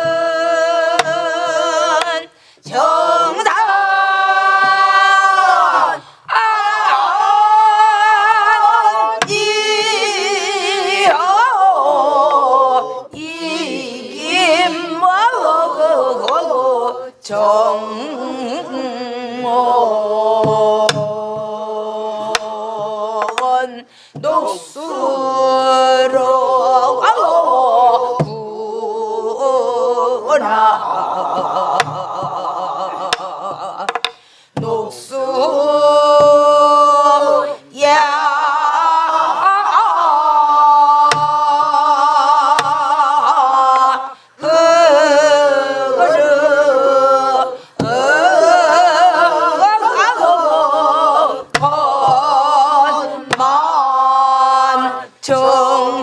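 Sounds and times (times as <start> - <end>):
group singing folk song in unison: 0.0 - 56.0
drum strokes: 30.6 - 37.2, 40.8 - 43.4, 47.8 - 54.4.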